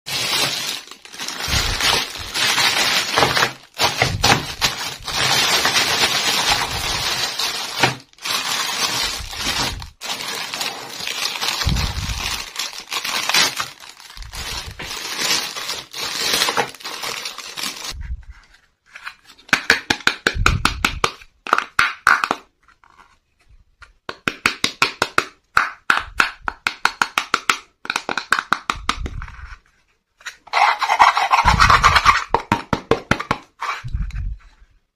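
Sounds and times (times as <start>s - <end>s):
plastic bag crinkling: 0.1s - 18.0s
fingers scraping plastic toy: 30.3s - 32.3s.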